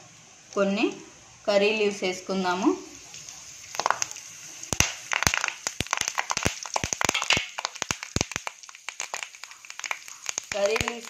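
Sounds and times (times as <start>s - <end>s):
leaves spluttering in hot oil: 2.3s - 11.0s.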